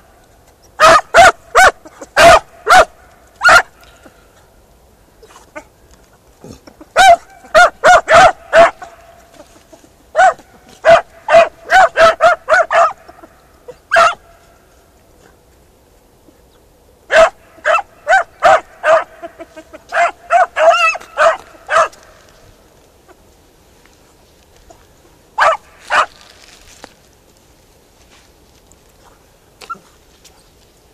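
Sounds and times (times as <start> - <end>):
dogs barking high-pitched yelps: 0.6 - 3.9, 6.9 - 9.2, 10.1 - 14.4, 17.1 - 22.2, 25.4 - 26.2.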